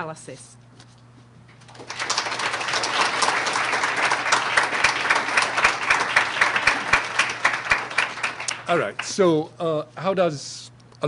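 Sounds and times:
audience applauding: 1.7s - 9.3s.

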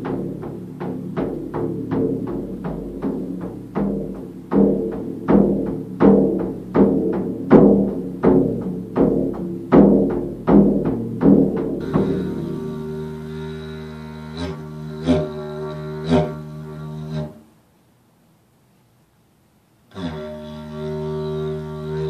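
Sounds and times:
frame drum beaten with beater: 0.0s - 17.2s.

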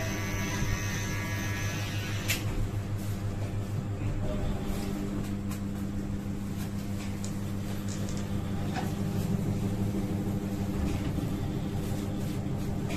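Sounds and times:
small motor humming: 0.0s - 2.4s.

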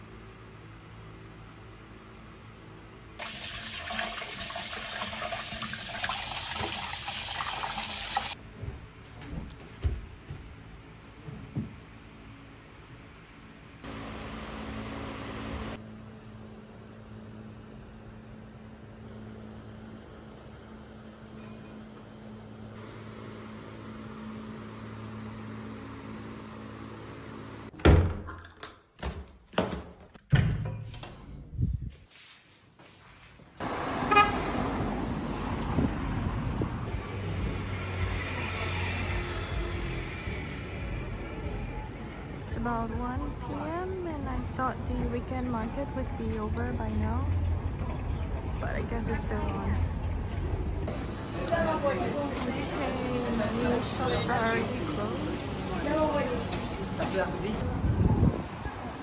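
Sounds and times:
tap water splashing into pot: 3.2s - 8.3s.

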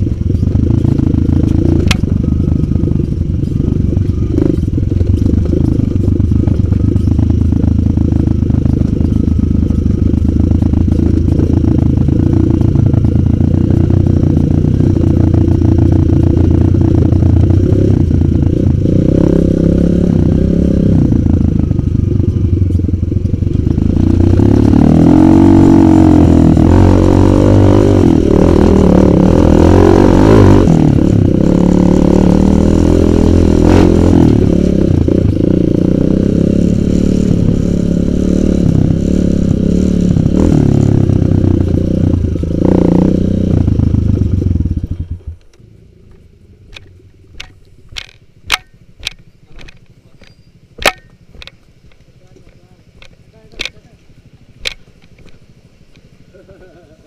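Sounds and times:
dirt bike engine revving: 0.0s - 45.4s
sharp clicks: 45.4s - 53.8s, 54.6s - 56.1s.

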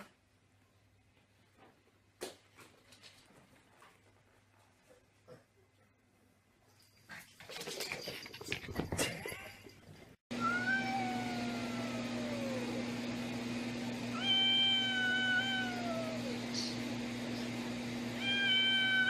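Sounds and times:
clattering and scuffling: 1.5s - 5.4s, 6.8s - 10.2s
cat yowling: 10.3s - 12.8s, 14.1s - 16.4s, 18.2s - 19.0s.

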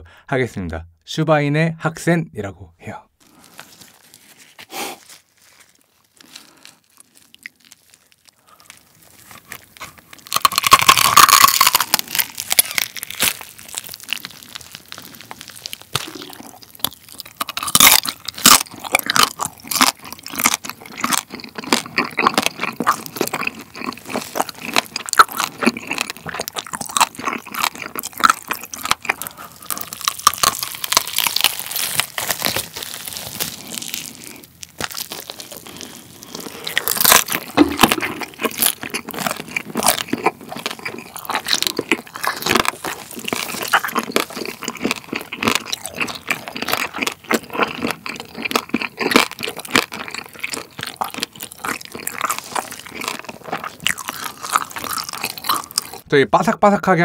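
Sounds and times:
crunching and chewing: 3.2s - 56.1s.

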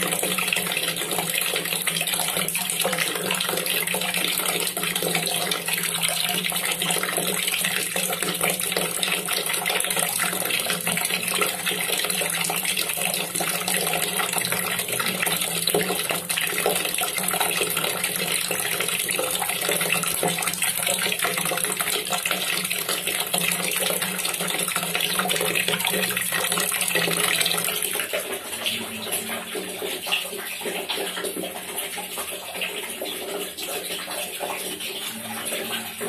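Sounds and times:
water pouring into water: 0.0s - 36.0s.

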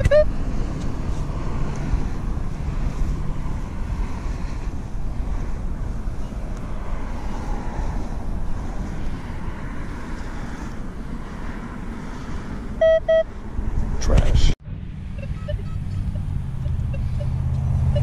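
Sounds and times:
metal detector beeps: 12.8s - 13.3s, 15.2s - 18.0s.

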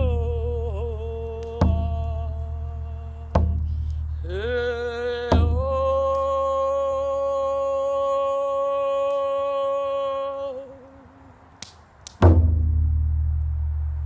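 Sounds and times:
woman singing wordless chant: 0.0s - 11.3s
frame drum beat: 3.3s - 3.7s, 5.3s - 5.7s, 12.2s - 13.4s.

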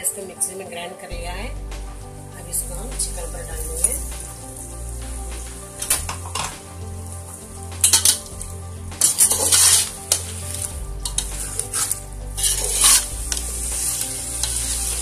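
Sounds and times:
meat sizzling in hot oil: 2.0s - 15.0s
spatula scraping pot: 9.0s - 15.0s.

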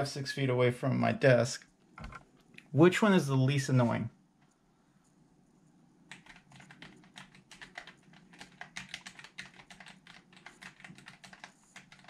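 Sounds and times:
fast typing on mechanical keyboard: 6.1s - 12.0s.

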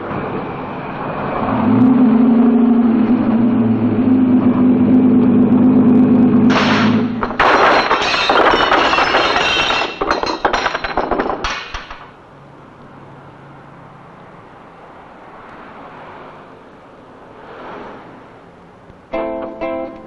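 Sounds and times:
car crashing into stall: 6.5s - 12.1s
boards and flowerpots breaking: 6.5s - 12.2s.

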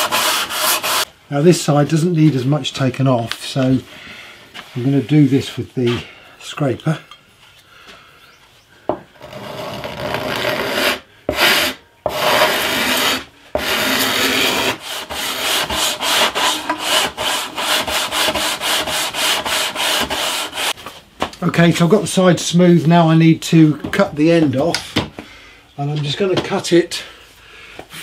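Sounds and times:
sanding block rubbing wood: 0.0s - 1.1s, 9.2s - 20.8s.

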